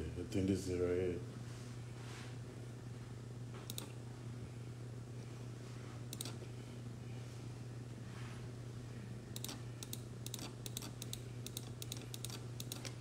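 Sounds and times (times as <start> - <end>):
steady low hum: 0.0 - 13.0
computer mouse clicking: 3.7 - 3.9, 6.1 - 6.4, 9.4 - 13.0.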